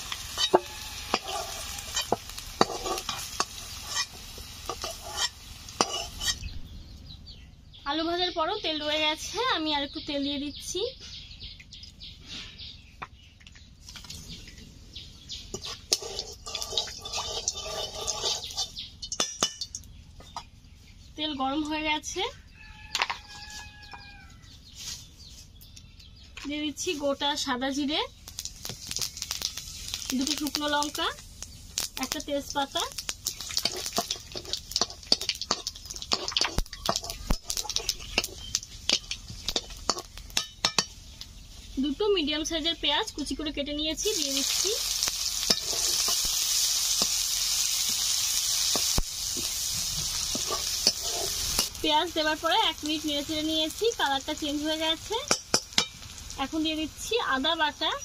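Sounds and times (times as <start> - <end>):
oil hissing and crackling: 0.0 - 6.5, 15.4 - 19.8, 28.2 - 41.8, 44.0 - 57.5
sharp pops of spitting oil: 32.9 - 41.3, 55.3 - 56.3.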